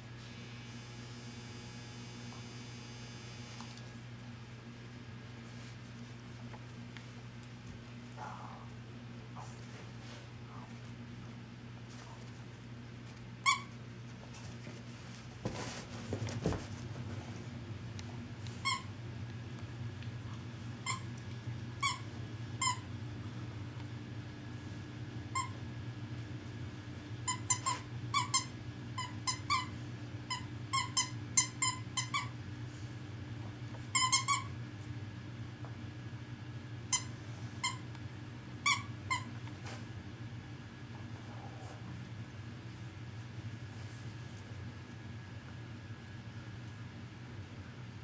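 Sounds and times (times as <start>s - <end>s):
low steady hum: 0.0s - 48.0s
squeaky dog toy squeaking: 13.4s - 13.7s, 21.8s - 22.0s, 30.3s - 32.3s, 34.0s - 34.5s, 38.6s - 39.3s.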